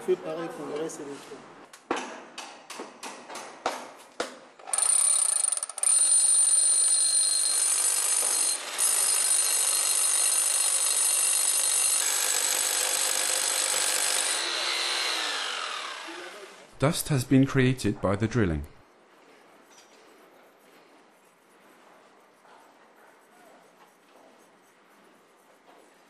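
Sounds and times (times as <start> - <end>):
hammer drill whining: 4.6 - 16.7.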